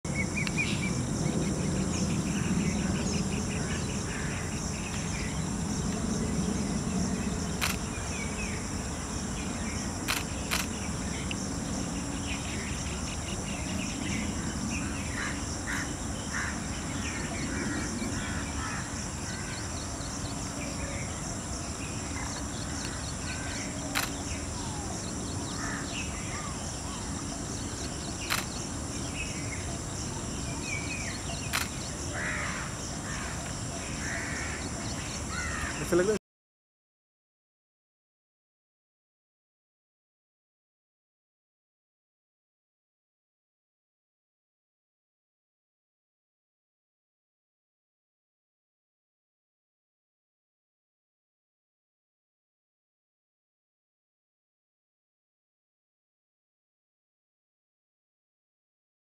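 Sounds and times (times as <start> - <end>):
birds chirping: 0.1 - 36.2
insects droning: 0.1 - 36.2
sharp clicks: 7.6 - 7.8, 10.1 - 11.4, 23.9 - 24.2, 28.2 - 28.6, 31.5 - 31.9.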